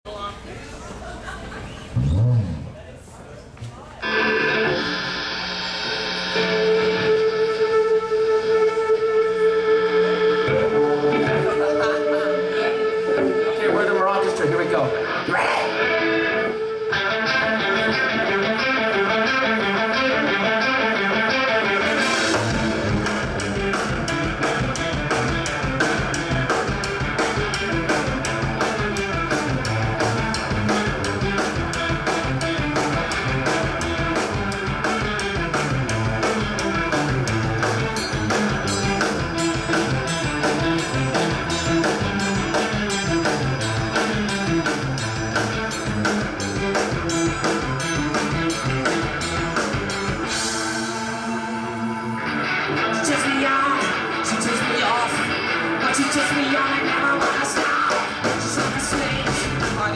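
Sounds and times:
bass guitar: 0:01.9 - 0:03.0, 0:04.0 - 0:13.8, 0:14.4 - 0:59.9
electric guitars: 0:04.0 - 0:59.9
drum kit beat: 0:21.8 - 0:50.6, 0:57.2 - 0:59.9.

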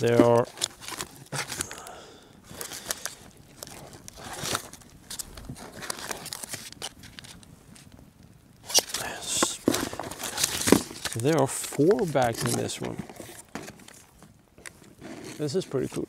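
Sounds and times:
foil pouches crinkling: 0:00.0 - 0:07.9, 0:08.6 - 0:16.0.

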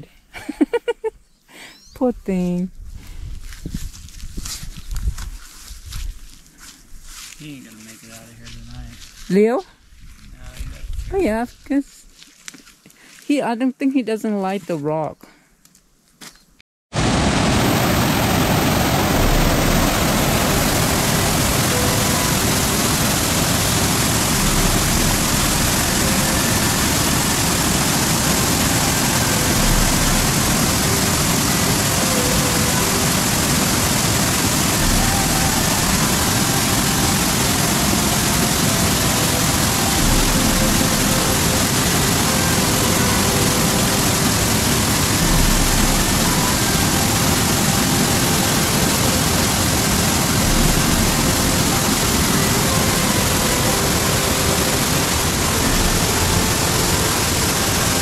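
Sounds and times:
creek rushing over boulders: 0:17.0 - 0:58.0.

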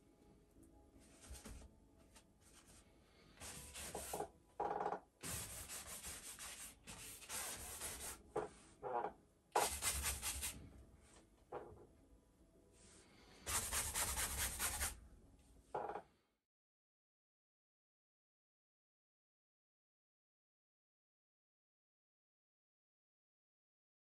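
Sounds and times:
bristle brush rasping on canvas: 0:01.1 - 0:02.8, 0:03.4 - 0:04.3, 0:05.2 - 0:08.7, 0:09.6 - 0:10.6, 0:13.5 - 0:14.9.

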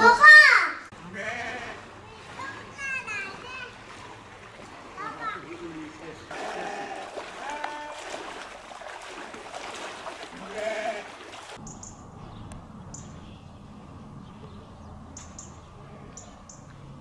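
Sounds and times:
people wading through water: 0:00.9 - 0:11.8
bird chirps: 0:11.6 - 0:16.9.

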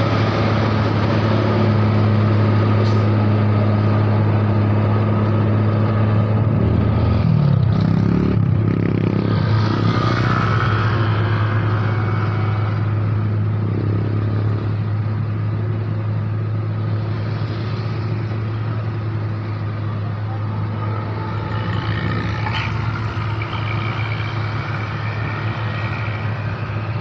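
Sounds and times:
diesel truck engine droning: 0:00.0 - 0:27.0
scooters and car passing: 0:04.9 - 0:15.8, 0:16.8 - 0:27.0.

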